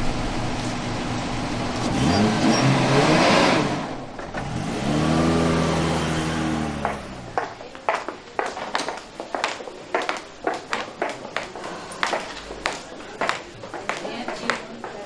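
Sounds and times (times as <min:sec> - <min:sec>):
truck engine idling and revving: 0:00.0 - 0:07.5.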